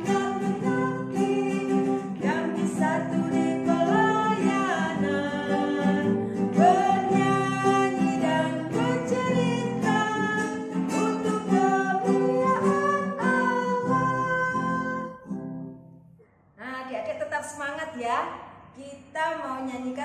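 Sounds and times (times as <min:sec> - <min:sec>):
woman singing: 0:00.0 - 0:15.3
strummed acoustic guitar: 0:00.0 - 0:15.9.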